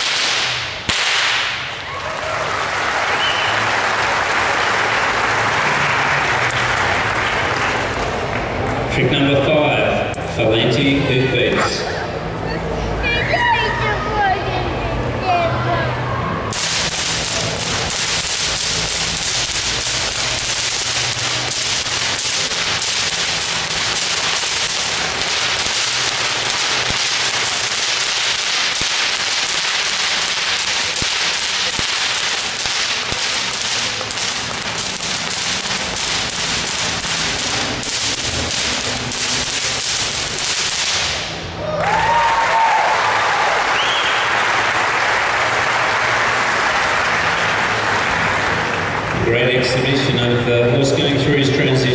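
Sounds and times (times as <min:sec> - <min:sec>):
whips cracking rhythmically: 0:00.0 - 0:08.9, 0:16.4 - 0:41.8
applause: 0:01.8 - 0:08.8, 0:41.8 - 0:49.2.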